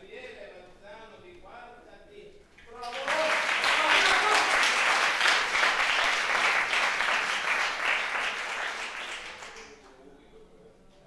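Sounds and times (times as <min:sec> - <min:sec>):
audience applauding: 0:02.7 - 0:10.0.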